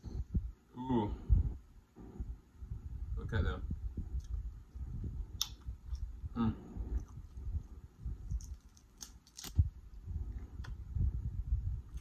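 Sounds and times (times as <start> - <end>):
chewing and wet mouth sounds: 6.9 - 7.6
crab shell cracking: 8.3 - 9.6.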